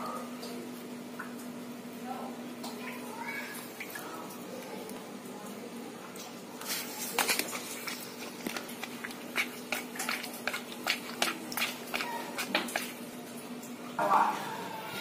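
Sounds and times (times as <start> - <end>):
wet squelches of packing filling: 6.6 - 13.8.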